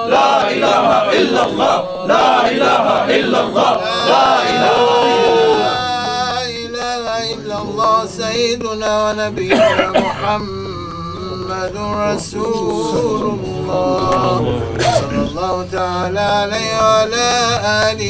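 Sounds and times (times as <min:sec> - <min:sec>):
men chanting together: 0:00.0 - 0:18.0.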